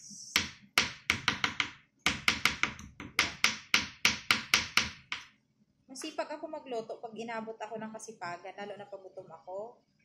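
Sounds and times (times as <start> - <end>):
knife chopping on wooden board: 0.3 - 5.3.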